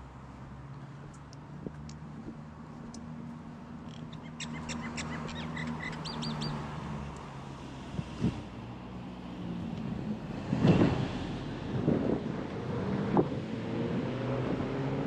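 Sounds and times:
bird calling: 4.1s - 6.7s.

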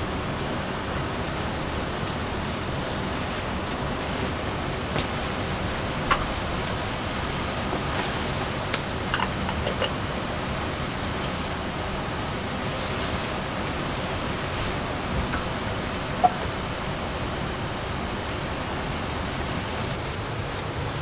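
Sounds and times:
rain falling: 0.0s - 21.0s
kettle clinking on metal grate: 9.1s - 10.1s, 15.2s - 16.7s.

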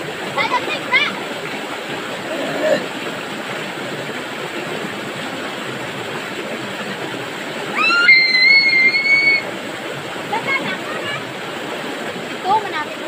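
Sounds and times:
river water rushing: 0.0s - 13.0s
girl shrieking: 7.7s - 9.5s.

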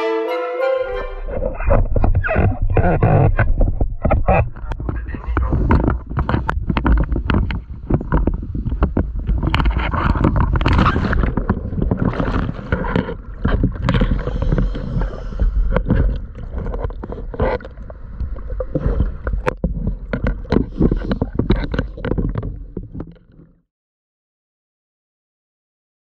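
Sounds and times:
low underwater rumble: 0.9s - 23.6s
underwater gurgling and bubbles: 1.3s - 23.7s.

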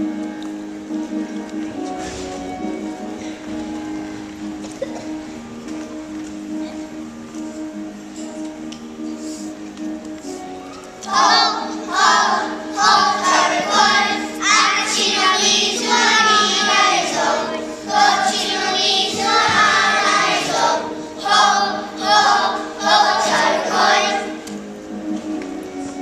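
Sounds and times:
instrumental accompaniment: 0.0s - 26.0s
children singing: 11.0s - 24.6s.

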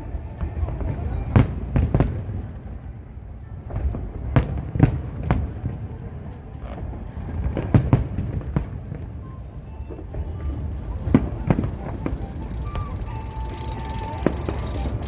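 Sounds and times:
fireworks booming: 0.4s - 2.8s, 3.7s - 6.1s, 6.8s - 9.4s, 11.0s - 12.1s.

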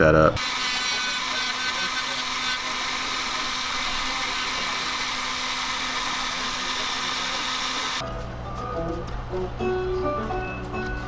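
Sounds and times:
rotary tool sanding wood: 0.4s - 8.0s.

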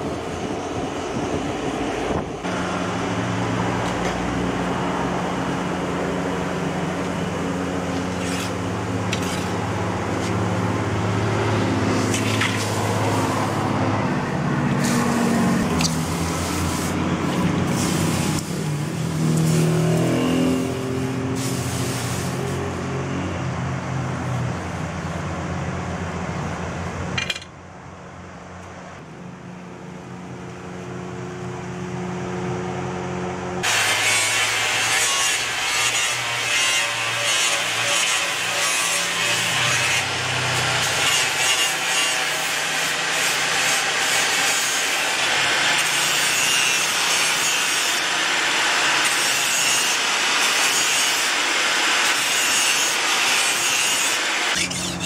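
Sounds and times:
angle grinder grinding metal: 7.0s - 13.8s, 14.7s - 22.8s, 33.6s - 55.0s.

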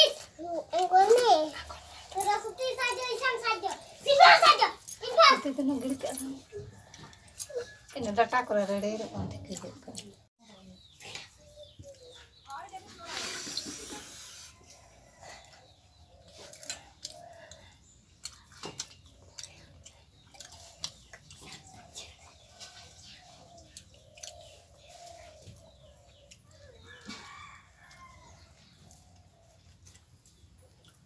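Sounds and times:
chewing: 6.4s - 8.0s, 13.4s - 31.0s
wet slurp: 13.0s - 14.6s.

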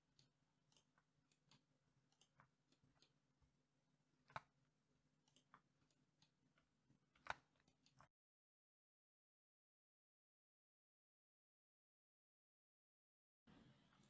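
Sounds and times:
computer mouse clicks: 0.0s - 3.2s, 4.2s - 4.6s, 5.2s - 8.1s
keyboard key presses: 7.0s - 8.1s.

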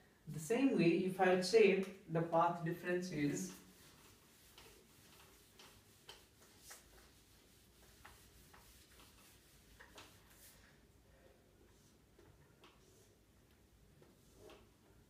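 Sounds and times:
duster wiping whiteboard: 2.7s - 10.9s, 11.5s - 15.0s.

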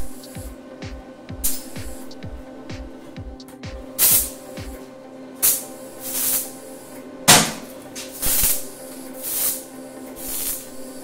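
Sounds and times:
background music: 0.0s - 11.0s
steady hum: 0.0s - 11.0s
short hissing bursts: 5.4s - 6.6s, 8.0s - 10.8s.

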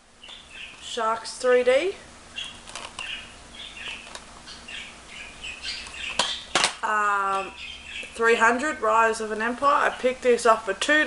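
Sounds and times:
plastic case clacks: 2.6s - 3.1s, 3.8s - 4.3s, 5.8s - 6.8s.

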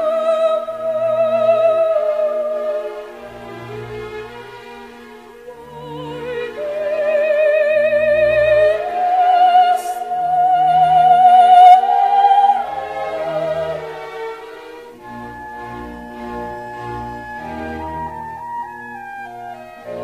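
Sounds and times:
operatic voice singing: 0.0s - 3.2s, 5.4s - 14.0s
instrumental accompaniment: 0.0s - 20.0s.

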